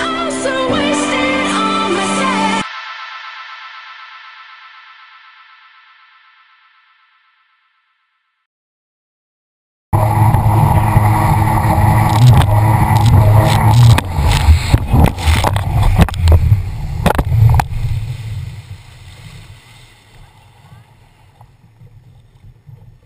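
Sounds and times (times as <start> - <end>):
jet ski engine droning: 10.0 - 23.0
wind and spray buffeting microphone: 10.1 - 23.0.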